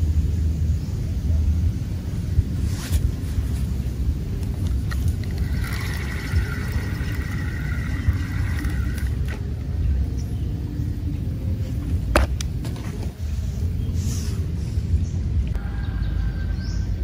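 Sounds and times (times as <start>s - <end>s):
fishing reel whirring: 4.9s - 9.4s.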